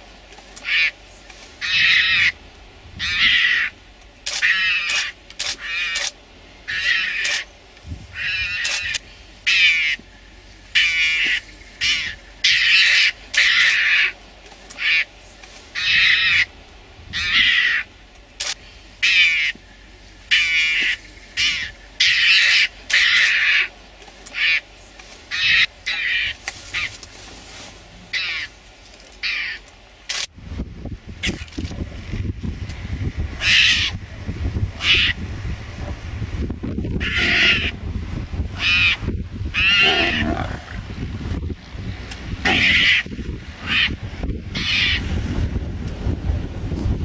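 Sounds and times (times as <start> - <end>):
animal harsh raspy calls: 0.6 - 1.0, 1.6 - 2.4, 3.0 - 7.5, 8.1 - 10.0, 10.7 - 14.2, 14.8 - 15.1, 15.8 - 16.5, 17.1 - 17.9, 19.0 - 19.6, 20.3 - 24.7, 28.1 - 28.5, 33.4 - 34.0, 34.8 - 35.2, 37.0 - 37.8, 38.6 - 40.9, 42.4 - 45.1.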